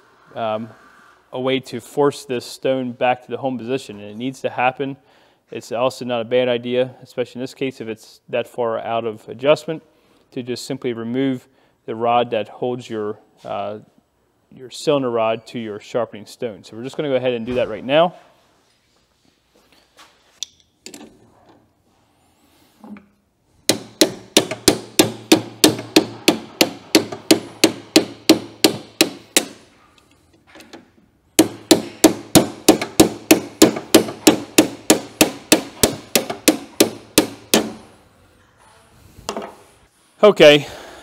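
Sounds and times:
hammer striking metal pin: 0:23.7 - 0:29.6, 0:31.4 - 0:37.9.

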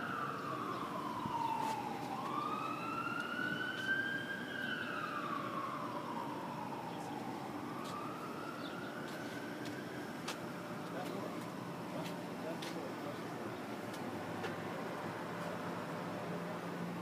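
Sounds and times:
emergency siren wailing: 0:00.0 - 0:13.5.

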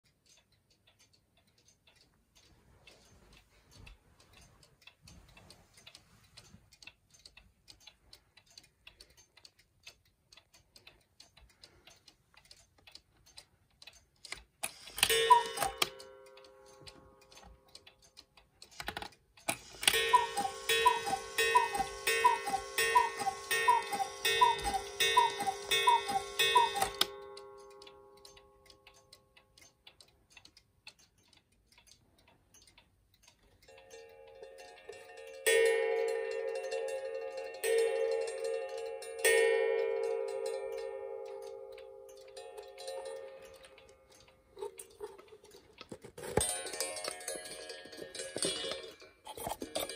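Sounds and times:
clock ticking: 0:00.0 - 0:49.9
two-note cuckoo calls: 0:15.1 - 0:16.0, 0:19.8 - 0:27.2.

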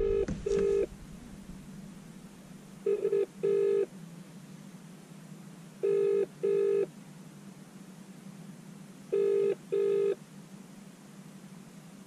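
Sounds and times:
telephone ringback tone: 0:00.0 - 0:00.9, 0:02.9 - 0:03.9, 0:05.8 - 0:06.9, 0:09.2 - 0:10.2.

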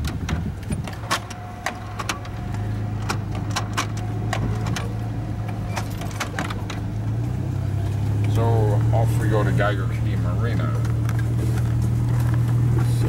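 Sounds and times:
sharp clicks and knocks: 0:00.0 - 0:07.4
van engine and road hum: 0:00.0 - 0:13.0.

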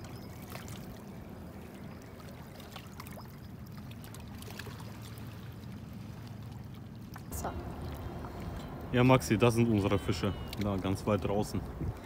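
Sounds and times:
river water lapping on stones: 0:00.0 - 0:12.0
low rumble: 0:07.2 - 0:12.0.

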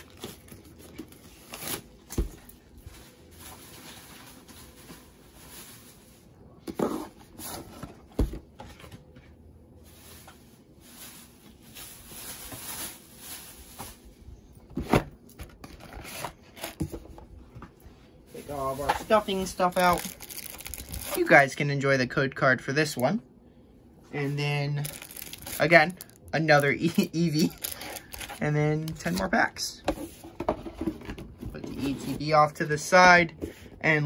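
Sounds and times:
plastic shrink wrap tearing: 0:18.4 - 0:21.4, 0:24.8 - 0:29.3.

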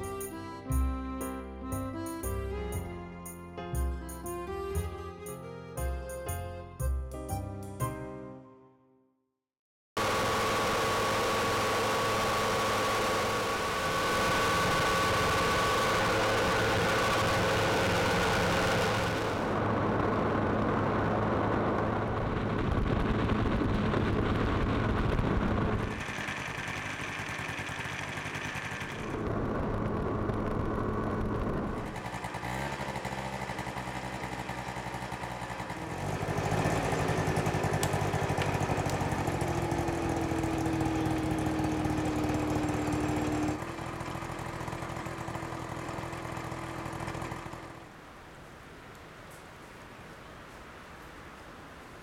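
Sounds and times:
small motorbike engine humming: 0:00.0 - 0:02.9, 0:10.0 - 0:48.2.

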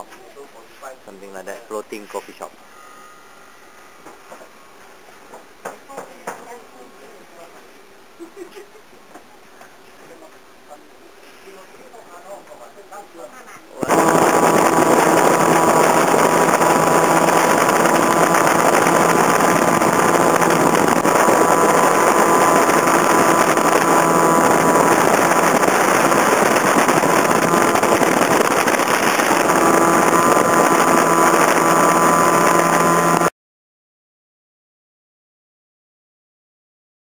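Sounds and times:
speedboat engine running: 0:13.8 - 0:33.3
rushing wind and water: 0:13.9 - 0:33.1.

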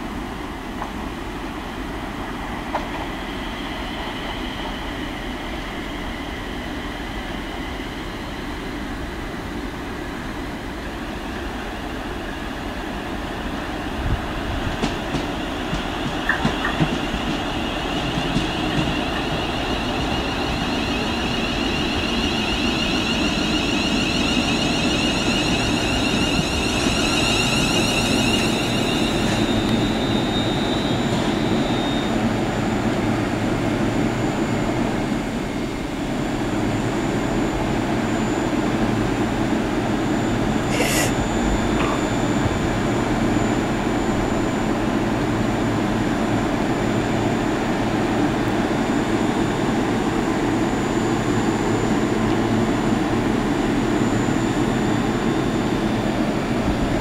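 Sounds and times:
train rumble: 0:00.0 - 0:57.0
train wheels clicking: 0:14.7 - 0:19.9
high steady whine: 0:15.7 - 0:57.0.

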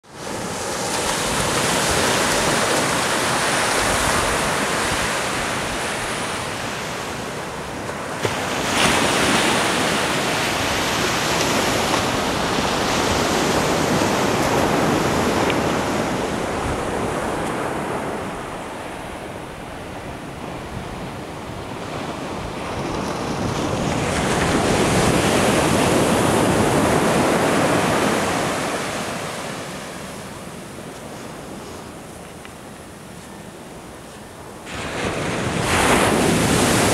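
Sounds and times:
surf breaking on beach: 0:00.1 - 0:19.1, 0:20.7 - 0:32.1, 0:34.5 - 0:36.9
wind buffeting microphone: 0:08.5 - 0:28.9.

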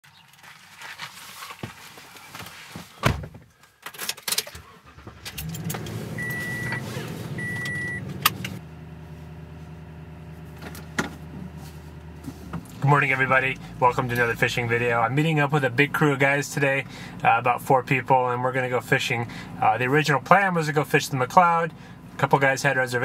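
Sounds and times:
engine starting and idling: 0:04.2 - 0:08.6.

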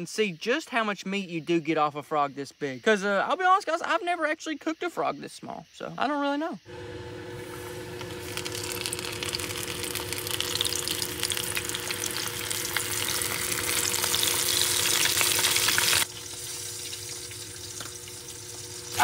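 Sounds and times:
faint steady hum: 0:06.6 - 0:19.0
frog sizzling in a pan: 0:06.6 - 0:19.0.

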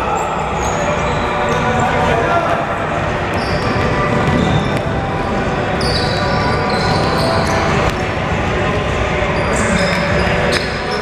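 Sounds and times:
sneakers squeaking on wood: 0:03.3 - 0:08.1.

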